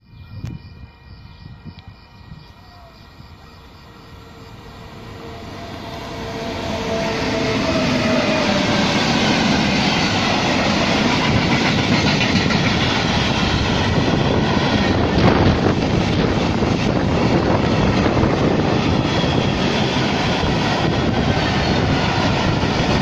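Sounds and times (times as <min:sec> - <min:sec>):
freight train passing: 0:00.0 - 0:23.0
wheels clattering over rails: 0:07.4 - 0:23.0.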